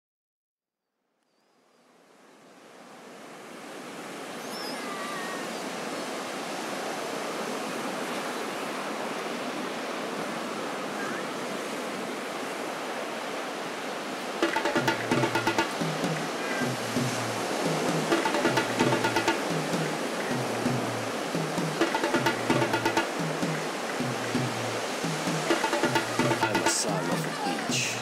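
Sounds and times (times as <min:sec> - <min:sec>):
faint high wavering calls: 0:04.4 - 0:05.7
ocean surf washing: 0:05.1 - 0:28.0
music with drum beat: 0:14.4 - 0:28.0.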